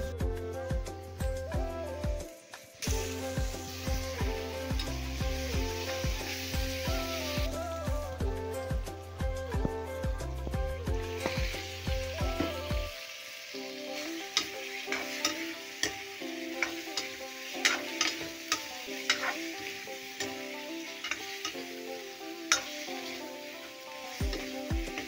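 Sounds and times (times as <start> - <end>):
background music: 0.0 - 25.0
meat sizzling in oil: 0.9 - 9.8, 10.4 - 25.0
steel spoon scraping metal pan: 14.0 - 23.2.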